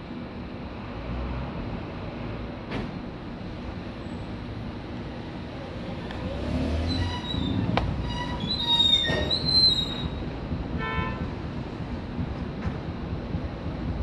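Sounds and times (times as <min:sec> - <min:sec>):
low engine rumble: 0:01.5 - 0:14.0
brakes squealing: 0:05.6 - 0:10.5.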